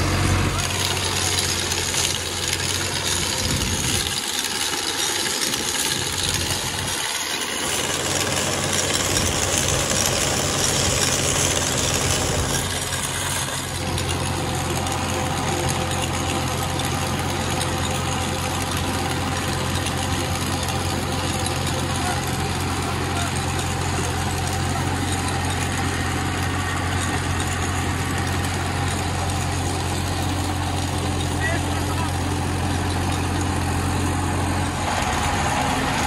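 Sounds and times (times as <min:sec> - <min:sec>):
diesel tractor engine: 0:00.0 - 0:36.0
soil rushing and rattling: 0:00.0 - 0:36.0.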